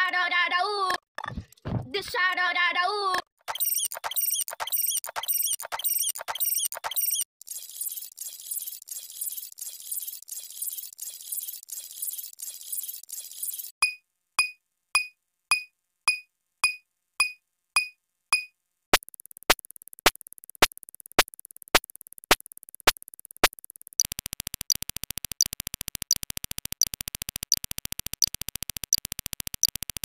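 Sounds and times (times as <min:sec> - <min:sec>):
sharp electronic clicks: 0:03.4 - 0:13.7, 0:19.0 - 0:30.0
rapid buzzing pulse with ticks: 0:19.0 - 0:30.0.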